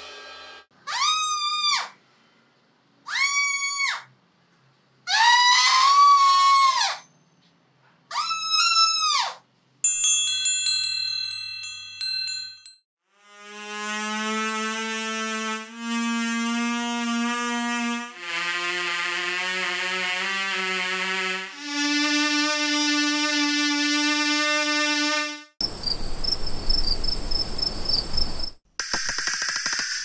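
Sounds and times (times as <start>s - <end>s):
paper straw oboe buzzy notes: 13.3s - 25.5s
rapid clicking: 28.8s - 30.0s.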